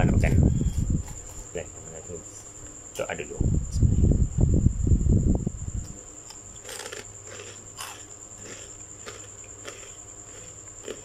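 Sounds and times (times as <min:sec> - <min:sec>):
cricket trilling: 0:00.0 - 0:11.0
crunchy chocolate being chewed: 0:06.3 - 0:11.0.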